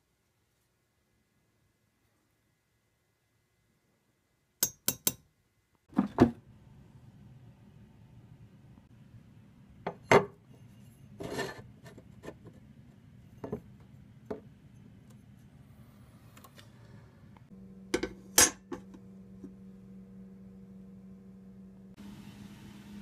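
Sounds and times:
steady low hum: 6.4 - 23.0.

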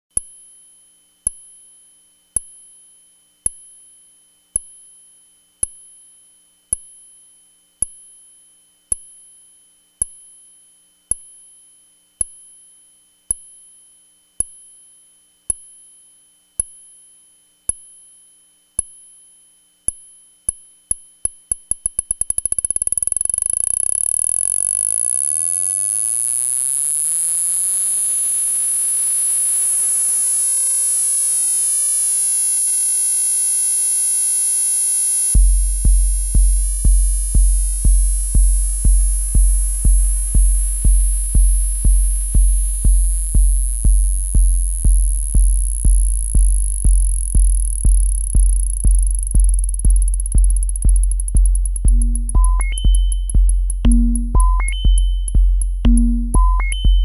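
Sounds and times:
steady high synthesizer whine: 23.3 - 57.0
high-pitched synthesizer ping: 35.4 - 57.0.

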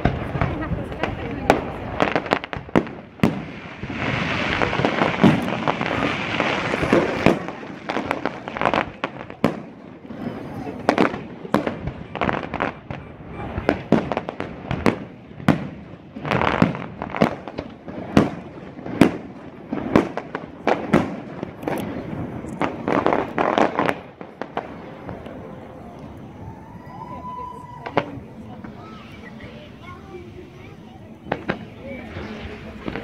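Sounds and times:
firework shells bursting: 0.0 - 25.4
firework crackling: 0.0 - 33.0.

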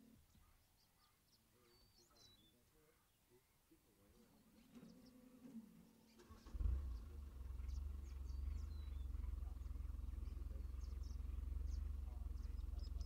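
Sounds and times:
faint high bird chirps: 0.0 - 3.6, 5.9 - 13.0
steady low rumble: 6.6 - 13.0.

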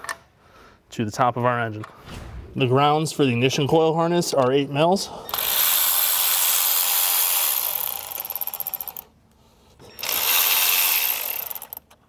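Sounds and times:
electric ratchet whirring: 5.3 - 9.1, 9.9 - 11.9.

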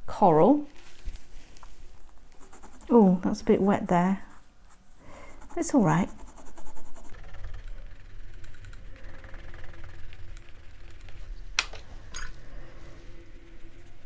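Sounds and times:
pencil scratching across paper: 2.3 - 11.5, 12.8 - 14.0.

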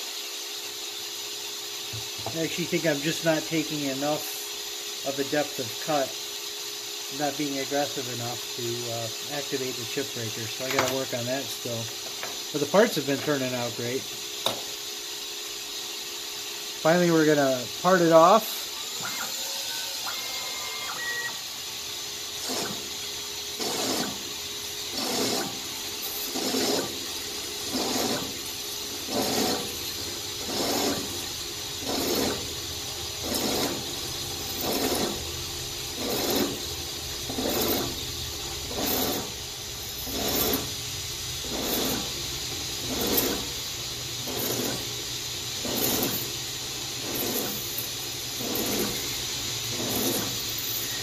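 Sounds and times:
lathe spindle running: 0.2 - 51.0
parting tool cutting bursts: 16.6 - 45.0, 45.6 - 46.4, 47.0 - 51.0.

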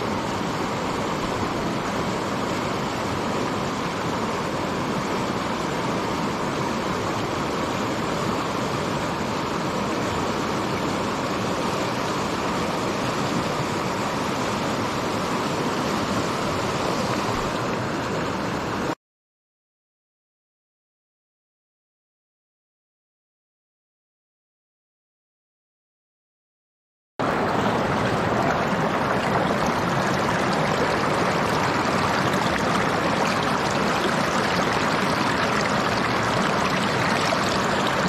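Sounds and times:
river water rushing: 0.0 - 19.0, 27.2 - 38.0.

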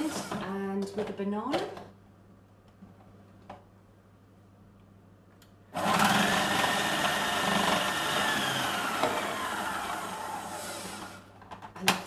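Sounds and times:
food processor motor whining: 0.0 - 0.4, 5.8 - 11.3.

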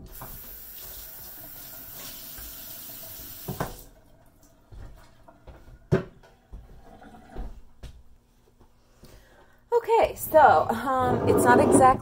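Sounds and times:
tap water running into sink: 0.0 - 7.5
clunk in sink: 3.5 - 3.8.

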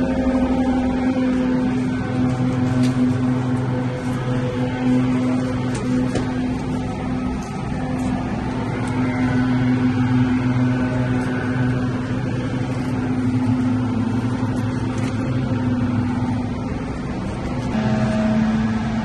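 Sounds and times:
leaf blowers running: 0.0 - 19.0.

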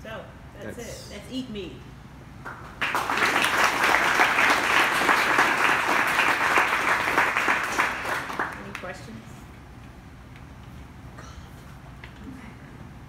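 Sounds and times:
audience applauding: 2.5 - 8.9.

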